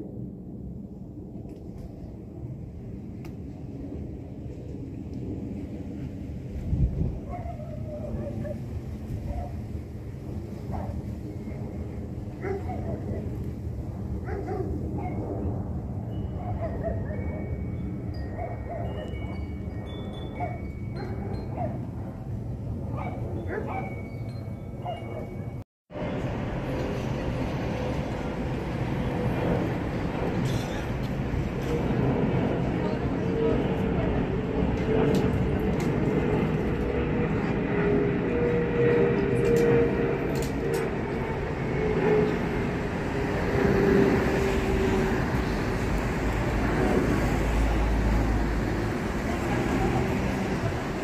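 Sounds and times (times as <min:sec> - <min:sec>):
airliner rumble overhead: 0:00.0 - 0:51.0
wind chimes ringing: 0:16.0 - 0:22.3, 0:23.3 - 0:25.6.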